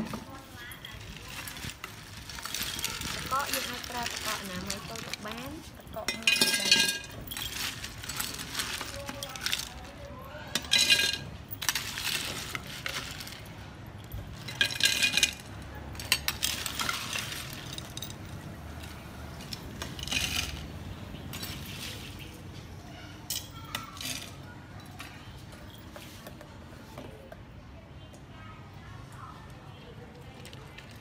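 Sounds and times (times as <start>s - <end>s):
ice cubes clinking: 0.6s - 22.3s.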